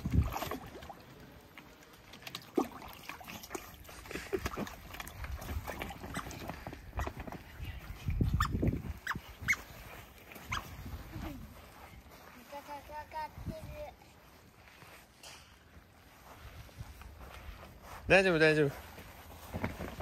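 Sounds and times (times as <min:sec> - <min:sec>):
water splashing: 0:00.0 - 0:11.0.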